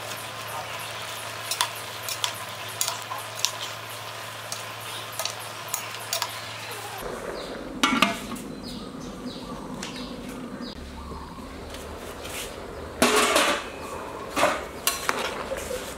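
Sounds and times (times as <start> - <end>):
metal lid clanging on pot: 13.0 - 13.8.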